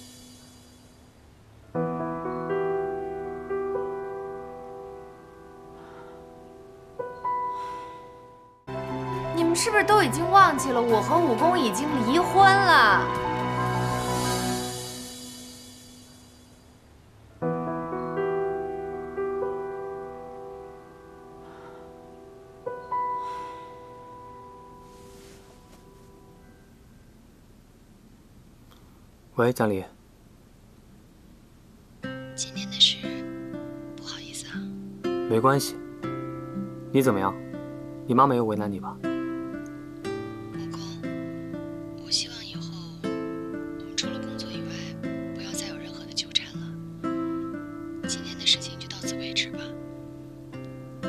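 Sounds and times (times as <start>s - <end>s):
slow piano chords: 0.0s - 27.4s, 32.0s - 51.0s.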